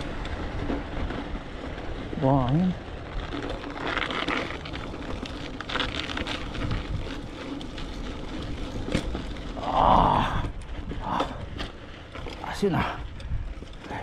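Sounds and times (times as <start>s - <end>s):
bike tyres on dirt trail: 0.0s - 14.0s
small rattles and clicks: 0.0s - 14.0s
wind on microphone: 6.3s - 7.4s.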